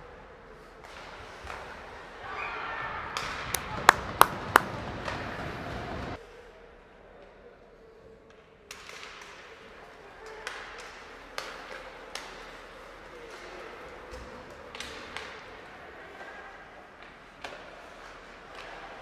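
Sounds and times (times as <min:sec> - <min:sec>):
arena background noise: 0:00.0 - 0:19.0
hockey sticks and puck clacking: 0:00.8 - 0:01.9, 0:03.2 - 0:05.6, 0:08.3 - 0:16.2, 0:16.9 - 0:19.0.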